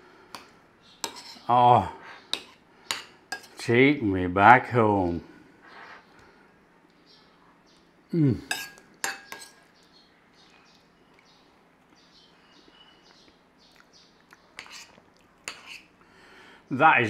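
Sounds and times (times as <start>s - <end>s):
metal spoon clinking against bowl: 2.3s - 3.6s, 8.5s - 9.6s
person humming: 8.1s - 8.5s.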